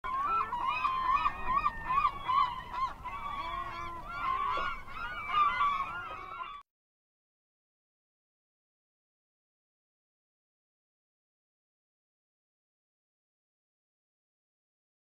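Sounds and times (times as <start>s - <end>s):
flock of birds calling: 0.0s - 6.6s.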